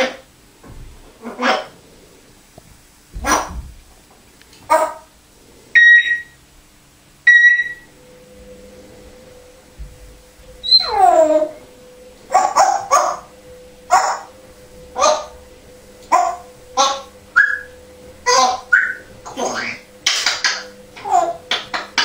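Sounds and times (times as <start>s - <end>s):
falling whine: 0.0s - 22.0s
parrot mimicking dog barks: 1.2s - 1.8s, 3.2s - 3.6s, 4.7s - 5.1s, 12.3s - 13.3s, 13.9s - 14.3s, 15.0s - 15.3s, 16.1s - 17.6s, 18.2s - 19.8s
loud short beeps: 7.3s - 7.8s.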